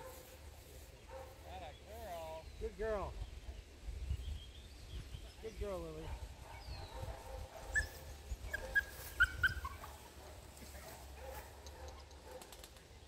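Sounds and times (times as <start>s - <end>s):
puppy whimpering: 8.5s - 9.9s.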